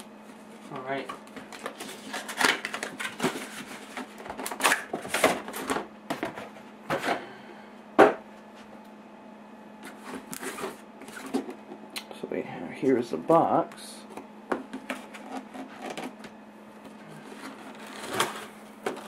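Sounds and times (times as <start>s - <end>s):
cardboard rustling and scraping: 0.3s - 6.6s, 17.1s - 19.0s.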